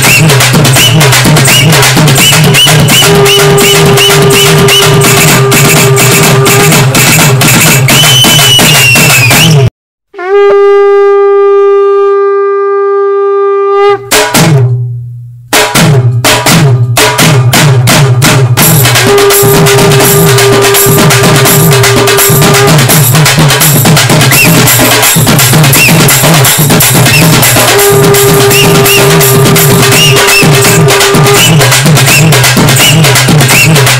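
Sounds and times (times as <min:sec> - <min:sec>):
music with drum beat: 0:00.0 - 0:09.7, 0:14.1 - 0:33.9
long wind instrument note: 0:02.9 - 0:06.9, 0:10.1 - 0:14.2, 0:19.1 - 0:22.8, 0:27.6 - 0:31.6.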